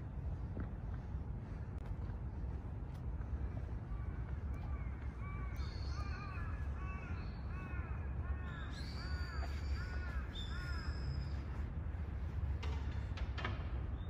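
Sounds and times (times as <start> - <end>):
crow cawing: 4.7 - 11.0.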